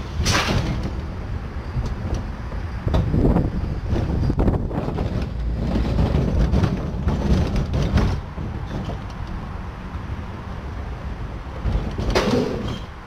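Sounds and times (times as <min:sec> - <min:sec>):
roller coaster wheels rumbling: 0:00.0 - 0:13.0
wind buffeting microphone: 0:00.0 - 0:13.0.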